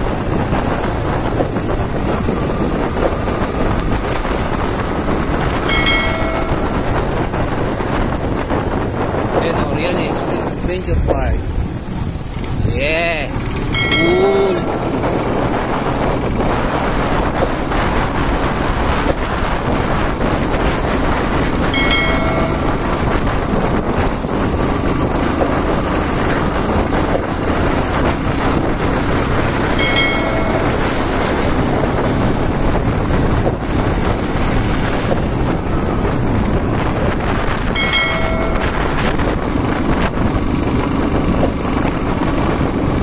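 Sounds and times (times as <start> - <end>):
motorcycle engine: 0.0 - 10.3, 11.4 - 43.0
wind rumble: 0.0 - 43.0
short chime: 5.7 - 7.3, 13.8 - 15.4, 21.8 - 23.2, 29.8 - 31.2, 37.8 - 39.2.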